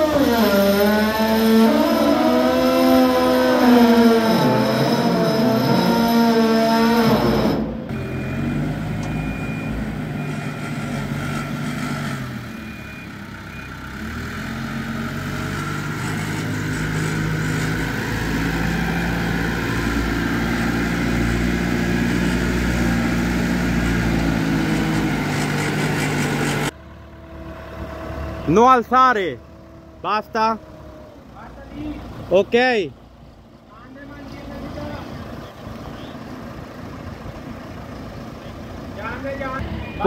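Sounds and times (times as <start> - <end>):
telehandler engine running: 0.0 - 40.0
short high beeps: 39.6 - 40.0.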